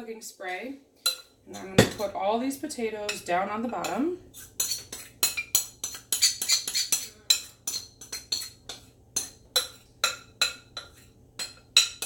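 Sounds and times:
metal spoon clinking against bowl: 1.0 - 2.1, 4.6 - 12.0.

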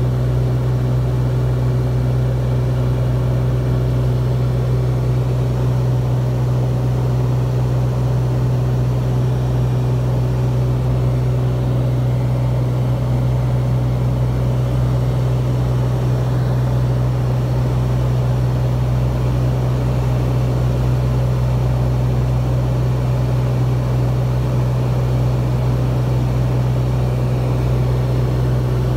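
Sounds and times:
aircraft engine and propeller droning: 0.0 - 28.9.

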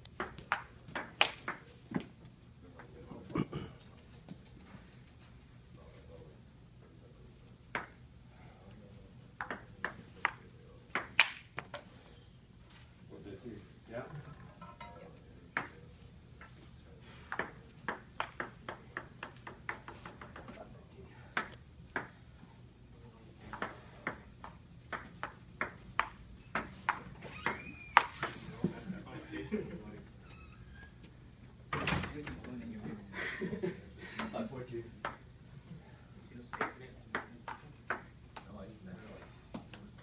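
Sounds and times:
table tennis ball hits: 0.2 - 1.7, 9.4 - 11.7, 17.3 - 20.6, 21.4 - 22.2, 23.5 - 28.4, 36.5 - 38.5
ping-pong ball clicking: 9.4 - 10.0.

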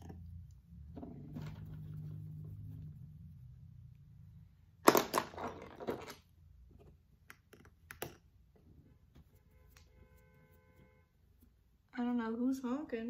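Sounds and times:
makeup brushes rustling and clattering: 0.8 - 3.0, 5.0 - 7.0.

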